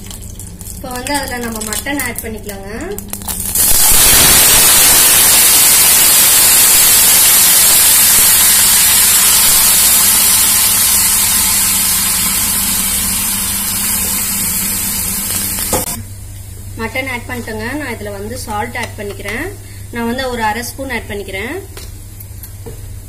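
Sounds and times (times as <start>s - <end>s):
meat sizzling in hot oil: 3.0s - 16.0s.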